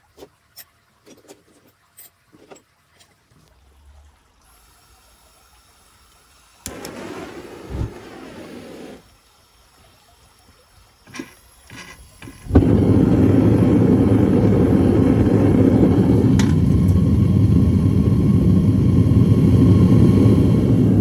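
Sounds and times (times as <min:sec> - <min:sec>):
gas burner roaring: 0:06.6 - 0:09.1, 0:11.1 - 0:21.0.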